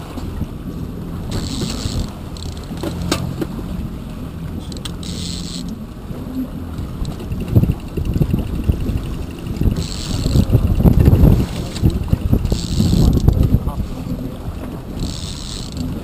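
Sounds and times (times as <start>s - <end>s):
boat engine running: 0.0s - 16.0s
water noise: 0.0s - 16.0s
wind on microphone: 0.0s - 16.0s.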